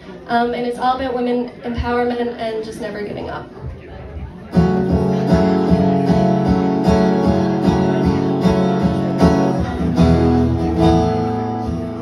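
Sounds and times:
acoustic guitar strumming: 4.4s - 12.0s.

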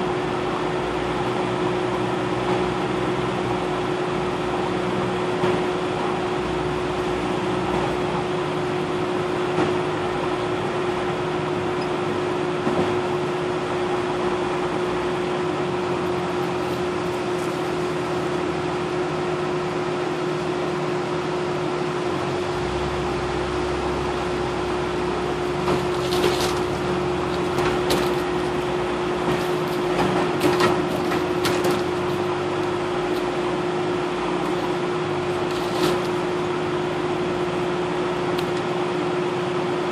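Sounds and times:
vehicle driving on dirt trail: 1.1s - 39.1s
sharp knocks and rattles: 25.6s - 32.3s.

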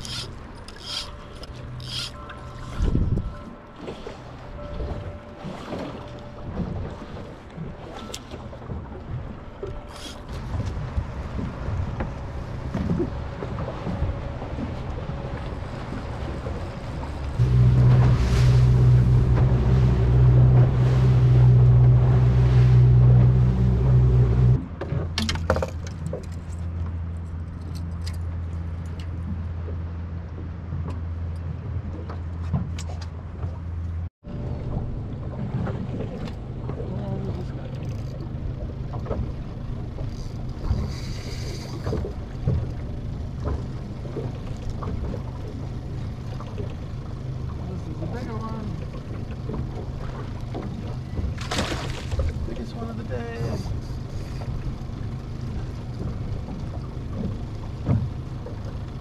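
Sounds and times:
higher whirr: 0.0s - 24.7s
boat engine running: 0.0s - 59.0s
outboard motor idling: 0.0s - 59.0s
hull and spray noise: 9.3s - 24.6s, 34.5s - 59.0s.

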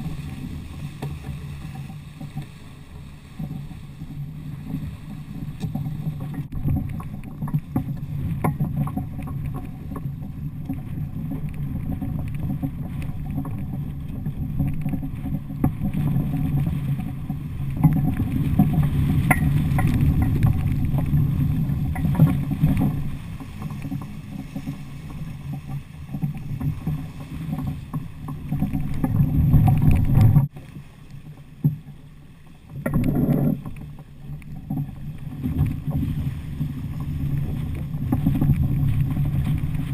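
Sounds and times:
wind buffeting microphone: 0.0s - 30.5s, 32.8s - 39.9s
water rushing along a boat hull: 0.0s - 39.9s.

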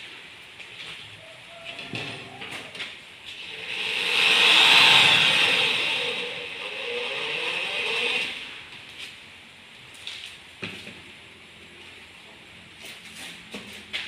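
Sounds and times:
electric drill boring into metal: 3.4s - 8.6s.

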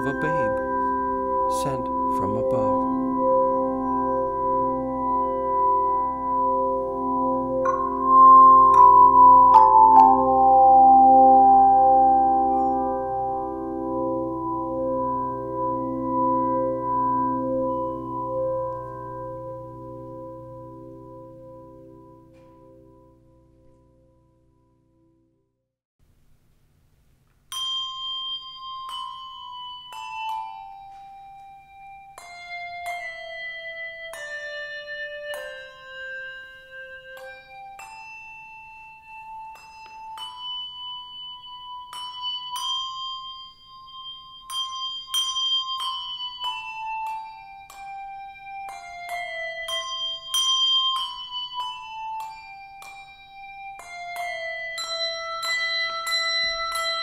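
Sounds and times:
handbell choir playing a melody: 0.0s - 21.3s, 27.6s - 57.0s.

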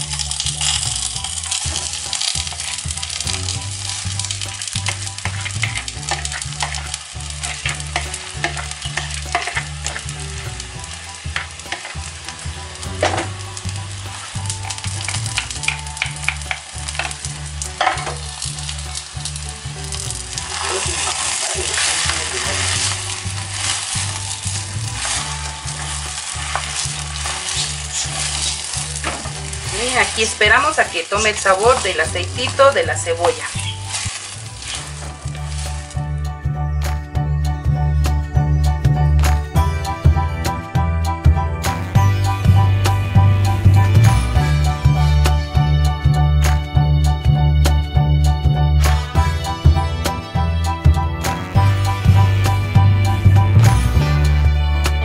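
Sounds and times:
potato sizzling in hot oil: 0.0s - 36.2s.

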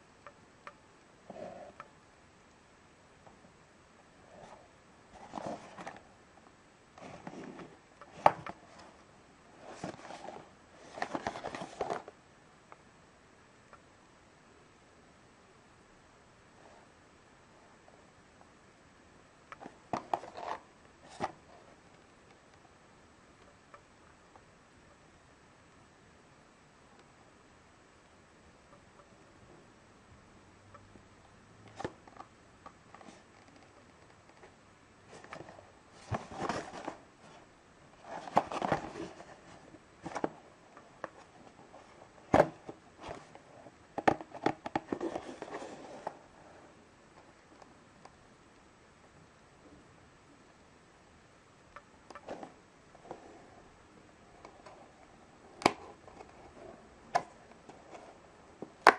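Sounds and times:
paper box rustling: 4.4s - 6.0s, 9.6s - 12.1s, 35.1s - 37.4s, 38.0s - 40.5s, 41.2s - 46.2s.

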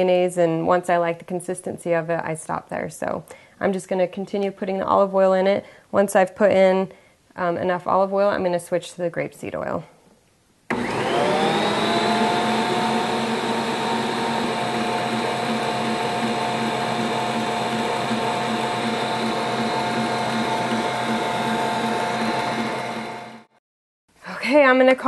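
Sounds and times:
stand mixer motor whining: 10.7s - 23.5s.

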